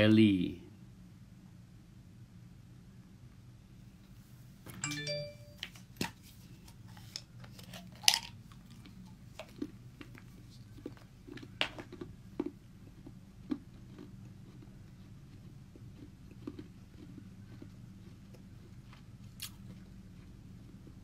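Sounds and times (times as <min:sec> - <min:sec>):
low steady hum: 0:00.0 - 0:21.0
brief multi-tone chime: 0:04.8 - 0:05.7.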